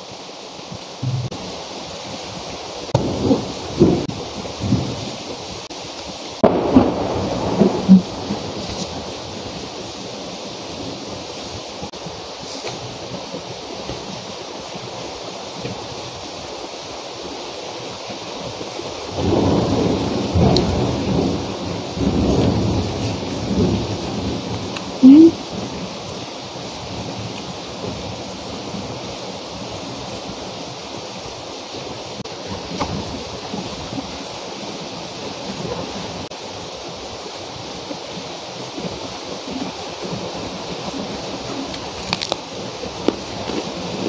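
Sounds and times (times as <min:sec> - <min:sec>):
heavy rain pouring: 0:00.0 - 0:44.0
thunder rumbling: 0:02.4 - 0:05.8, 0:06.4 - 0:15.0, 0:19.1 - 0:26.0.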